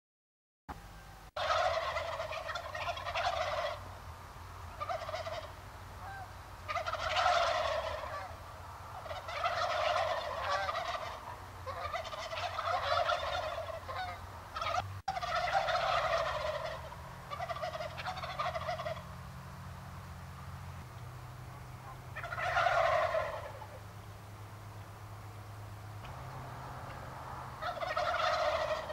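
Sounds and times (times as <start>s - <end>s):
low steady hum: 0.7s - 28.9s
turkeys gobbling: 1.0s - 28.9s.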